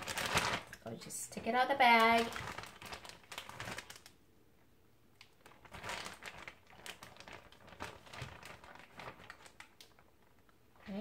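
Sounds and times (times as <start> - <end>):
plastic bag crinkling: 0.0 - 4.2, 5.2 - 11.0.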